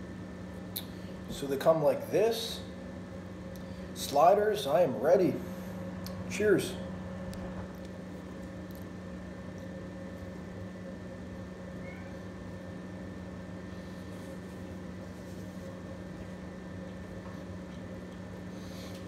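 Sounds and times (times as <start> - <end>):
mechanical room hum: 0.0 - 19.0.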